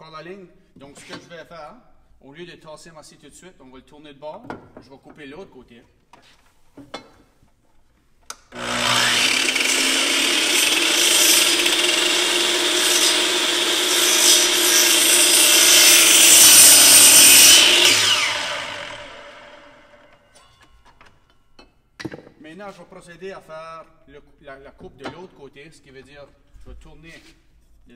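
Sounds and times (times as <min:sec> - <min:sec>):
miter saw cutting wood: 0:08.5 - 0:20.2
saw blade winding down: 0:08.5 - 0:20.2.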